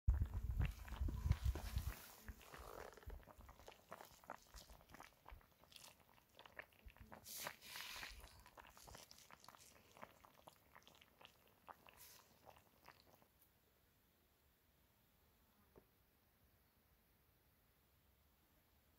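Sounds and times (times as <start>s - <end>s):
simmering pan popping and crackling: 0.1s - 13.4s.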